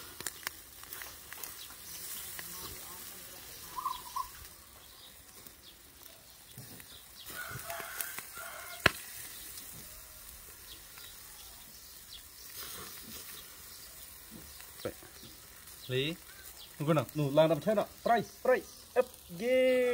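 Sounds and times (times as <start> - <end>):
food sizzling on grill: 0.0 - 19.9.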